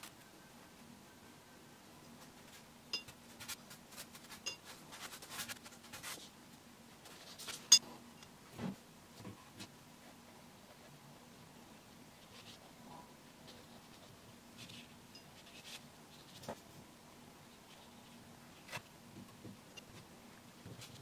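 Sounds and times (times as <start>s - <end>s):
brush clinking on tin and jar: 4.4s - 4.7s.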